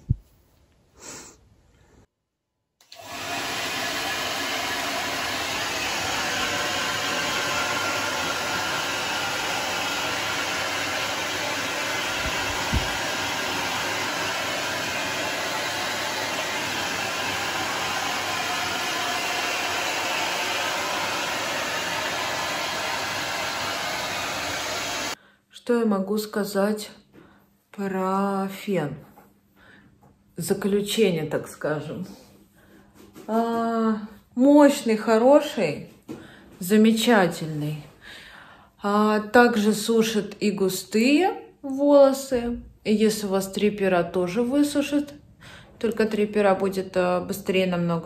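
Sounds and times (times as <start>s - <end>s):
hair dryer blowing: 2.8s - 25.2s.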